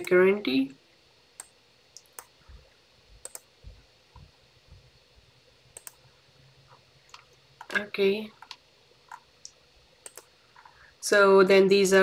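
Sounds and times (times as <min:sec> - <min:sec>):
computer mouse clicks: 0:01.4 - 0:02.3, 0:03.2 - 0:03.5, 0:05.7 - 0:06.0, 0:08.4 - 0:10.7
soft low thuds: 0:02.5 - 0:05.3.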